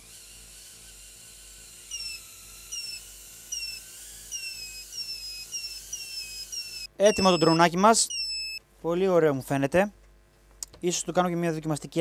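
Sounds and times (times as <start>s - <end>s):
drone motors whining: 0.2s - 8.6s
short falling chirps: 4.4s - 8.6s.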